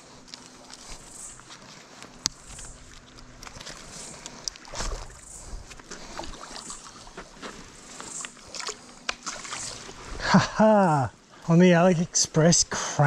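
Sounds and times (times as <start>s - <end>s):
fish splashing in water: 2.4s - 10.2s.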